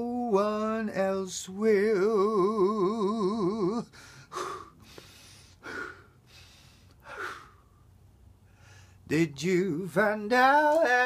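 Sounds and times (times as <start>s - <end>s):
loud breathy gasps: 3.9s - 7.8s, 8.5s - 9.0s.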